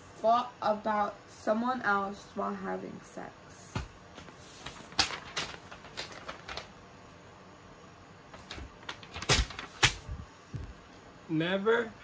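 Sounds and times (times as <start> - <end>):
paper sheets rustling: 3.8 - 6.7, 8.3 - 10.2.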